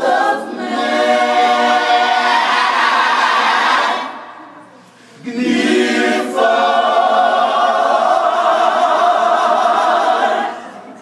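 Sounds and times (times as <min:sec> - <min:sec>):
choir singing a cappella: 0:00.0 - 0:04.5, 0:05.2 - 0:11.0.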